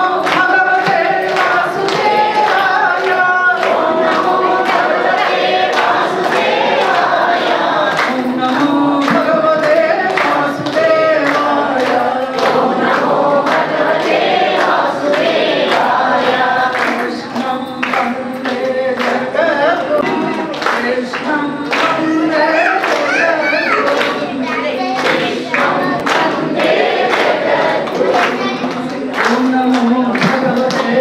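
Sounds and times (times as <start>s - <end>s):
group singing devotional song: 0.0s - 31.0s
hand clapping: 0.0s - 31.0s
woman singing into microphone: 7.4s - 13.4s, 16.4s - 26.4s, 28.0s - 31.0s.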